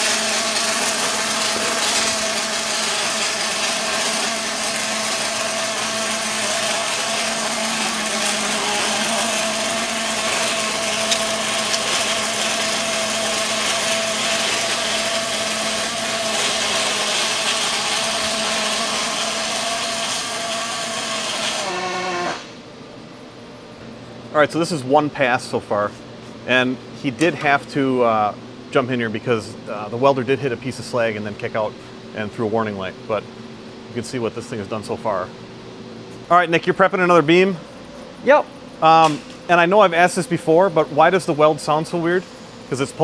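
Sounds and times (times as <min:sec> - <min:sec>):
welding arc buzzing: 0:00.0 - 0:22.7.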